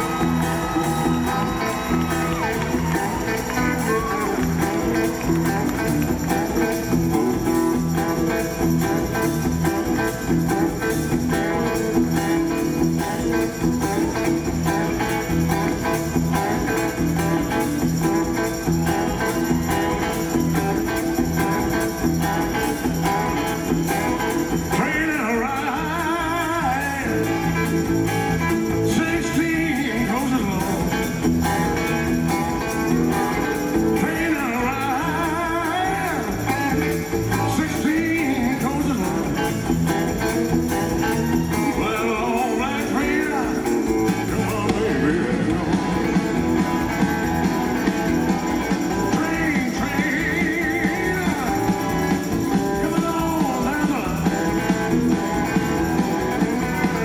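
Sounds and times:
rock band playing: 0.0s - 57.0s
man singing: 24.4s - 31.3s, 33.7s - 40.0s, 41.0s - 46.4s, 48.8s - 55.0s, 56.5s - 57.0s.

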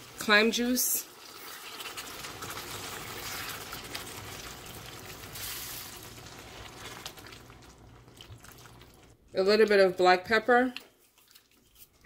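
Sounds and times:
liquid pouring into hot pan: 1.1s - 9.1s.

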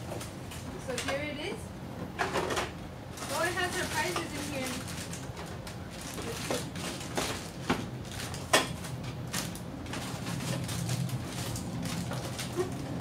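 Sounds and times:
plastic packaging crinkling: 3.2s - 13.0s.

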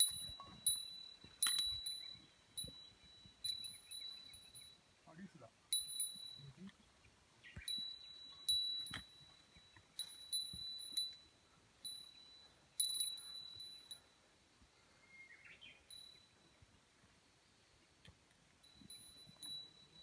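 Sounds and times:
small metal bell jingling: 0.0s - 6.8s, 7.6s - 14.3s, 15.8s - 16.6s, 18.6s - 20.0s.

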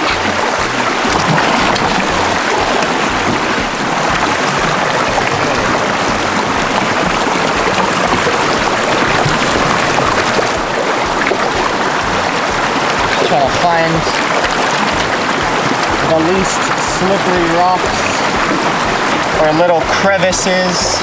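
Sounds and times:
person wading through water: 0.0s - 20.1s
river rushing over rocks: 0.0s - 21.0s.

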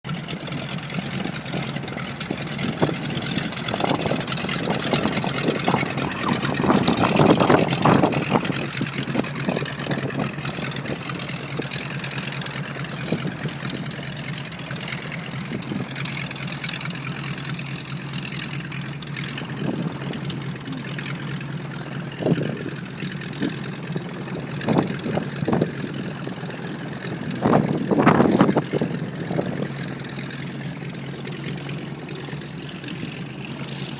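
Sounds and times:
radial aircraft engine droning: 0.1s - 33.9s.

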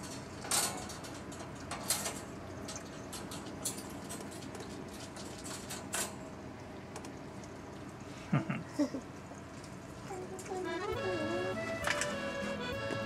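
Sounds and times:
cat moving with light clicks and rustles: 0.0s - 6.2s.

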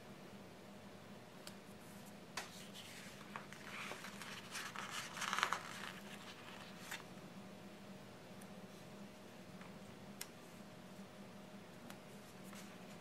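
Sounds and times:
paper rustling: 2.4s - 7.1s.

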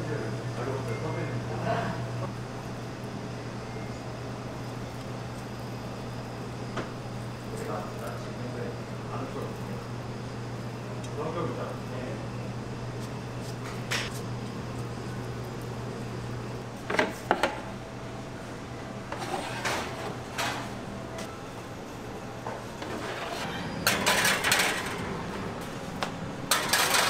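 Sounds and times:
low electrical hum: 0.0s - 27.0s
trays scraping on oven racks: 19.1s - 20.8s, 22.4s - 25.8s, 26.5s - 27.0s.

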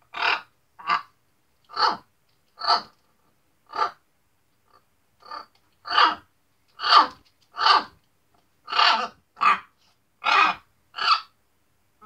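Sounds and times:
macaw harsh calls: 0.1s - 1.1s, 5.2s - 6.2s, 6.8s - 8.0s, 8.7s - 11.4s.

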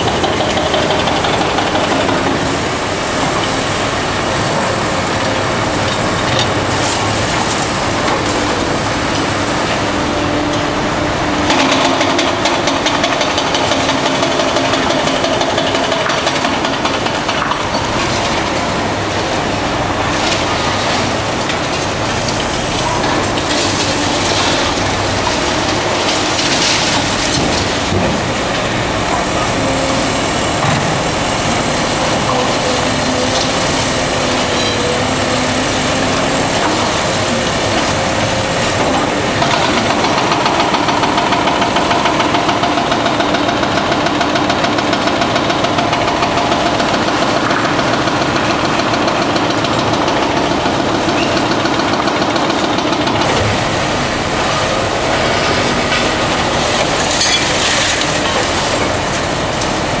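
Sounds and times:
diesel engines under load: 0.0s - 60.0s
concrete and rebar clattering: 54.8s - 60.0s.

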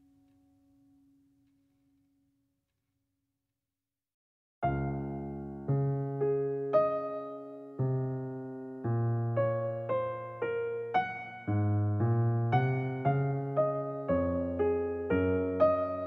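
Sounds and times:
soft piano music: 4.6s - 16.0s.

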